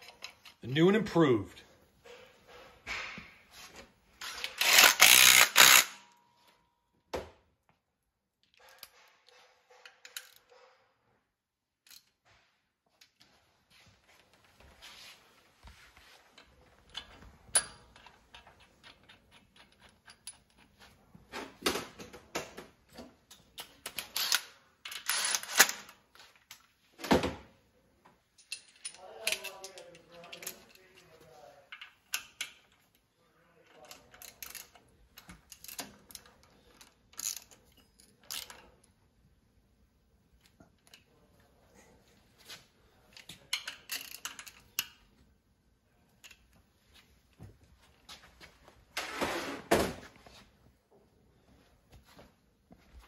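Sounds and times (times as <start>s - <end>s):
tools and metal parts clinking: 0.0s - 1.0s, 8.4s - 10.9s, 11.8s - 12.4s, 16.3s - 21.0s, 23.0s - 26.7s, 28.3s - 39.0s, 43.0s - 45.1s.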